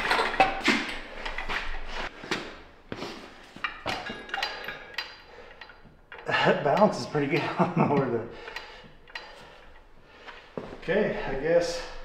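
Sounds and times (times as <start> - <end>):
metallic knocks and clanks: 0.0 - 1.9, 3.6 - 11.0.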